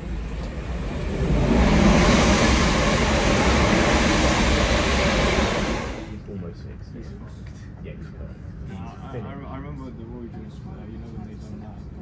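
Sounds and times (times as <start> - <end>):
train rushing rumble: 0.0 - 6.4.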